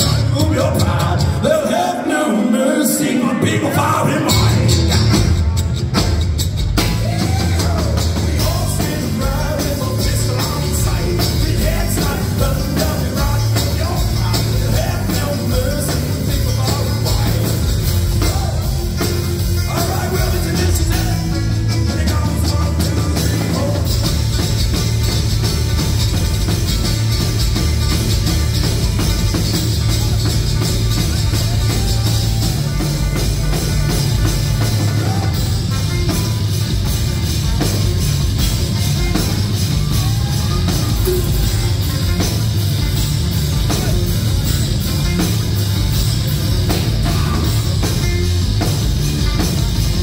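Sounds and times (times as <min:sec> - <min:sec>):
man singing: 0:00.0 - 0:05.2, 0:06.8 - 0:24.4, 0:46.6 - 0:48.3
live thrash bluegrass band: 0:00.0 - 0:50.0.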